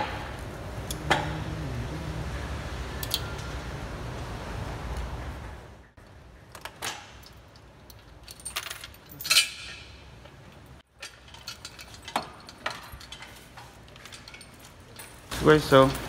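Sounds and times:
chain and hook clinking: 0:07.2 - 0:16.0.

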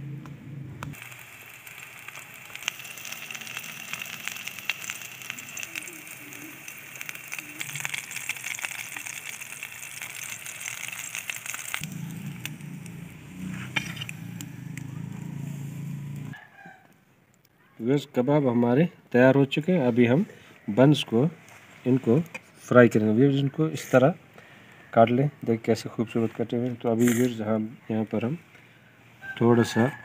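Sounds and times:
patties sizzling in hot oil: 0:00.9 - 0:16.4
low steady hum: 0:11.8 - 0:16.4.

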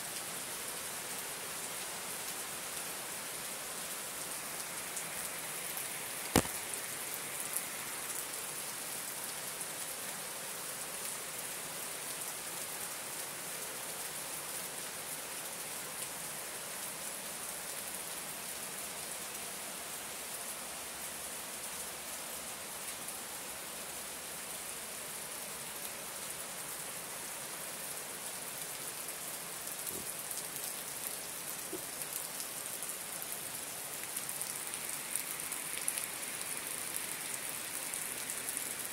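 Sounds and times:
rain on trees and tiled roof: 0:00.0 - 0:38.9
water dripping from eaves: 0:06.2 - 0:06.9.

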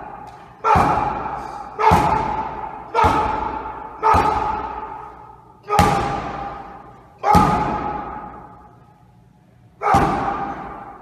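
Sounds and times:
punches hitting strike pad: 0:00.6 - 0:04.9, 0:05.7 - 0:08.3, 0:09.8 - 0:10.8.

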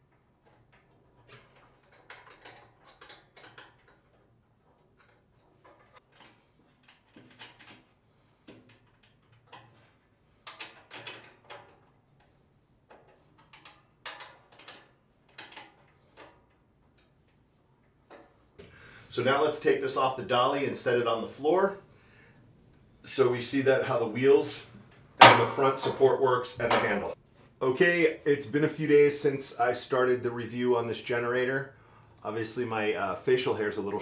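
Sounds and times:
wrench clicking on metal bolts: 0:08.5 - 0:12.3, 0:12.9 - 0:17.2.

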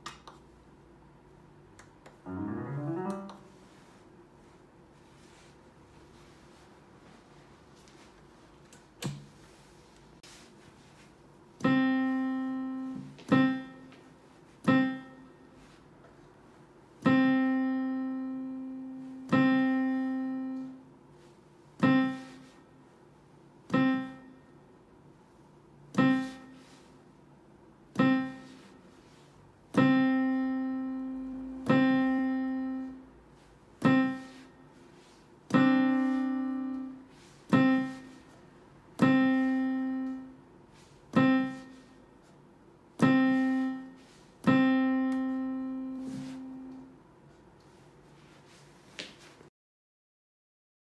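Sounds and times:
digital piano repeated note: 0:02.2 - 0:03.8, 0:11.6 - 0:13.9, 0:14.6 - 0:15.4, 0:17.0 - 0:20.9, 0:21.8 - 0:22.6, 0:23.7 - 0:24.4, 0:25.9 - 0:26.7, 0:27.9 - 0:28.8, 0:29.7 - 0:33.1, 0:33.8 - 0:34.5, 0:35.5 - 0:38.3, 0:38.9 - 0:40.4, 0:41.1 - 0:42.0, 0:43.0 - 0:46.9.

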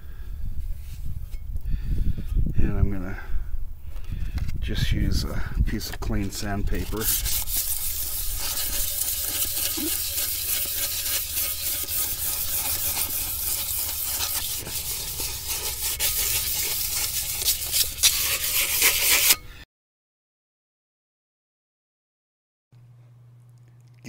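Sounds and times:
sandpaper scraping metal drum: 0:05.8 - 0:19.4.

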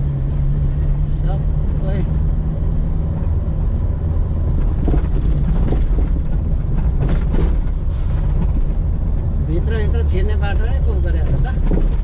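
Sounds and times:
engine and tyres rumbling: 0:00.0 - 0:12.0
car knocks and rattles: 0:04.4 - 0:09.2, 0:10.5 - 0:12.0.

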